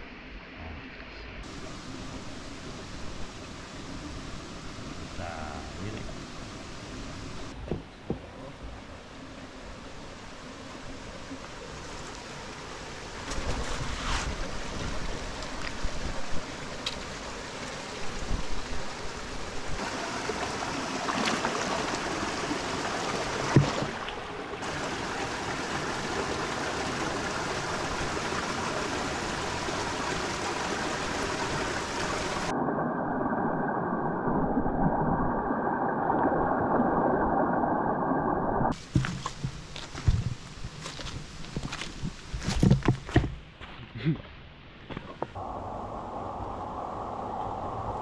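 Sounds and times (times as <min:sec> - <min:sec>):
stream gurgling over rocks: 0:08.2 - 0:42.6
sharp knocks and splashes: 0:23.4 - 0:24.2.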